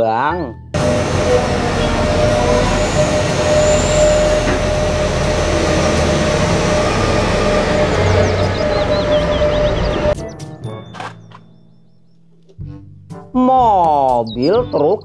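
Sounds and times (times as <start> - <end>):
dump truck driving past: 0.8 - 10.8.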